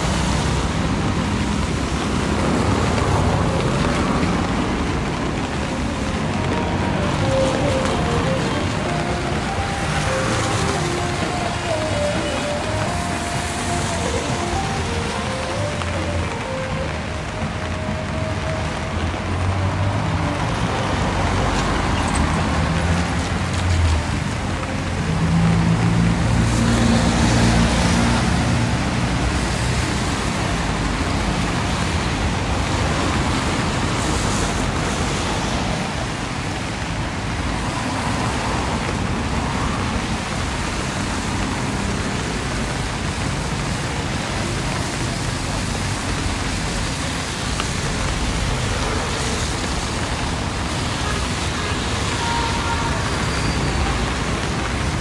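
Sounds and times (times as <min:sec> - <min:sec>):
rain and tyres hissing: 0:00.0 - 0:55.0
vehicle engines passing: 0:00.0 - 0:55.0.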